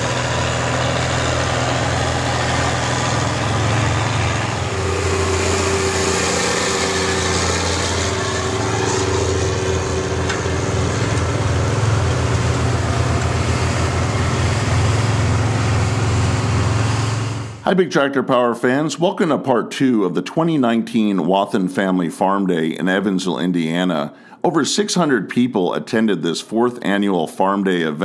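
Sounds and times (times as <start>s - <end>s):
tractor engine running: 0.0s - 17.8s.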